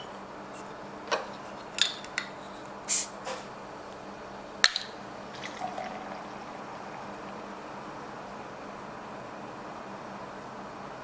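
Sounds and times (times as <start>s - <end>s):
liquid sounds: 5.2s - 9.1s.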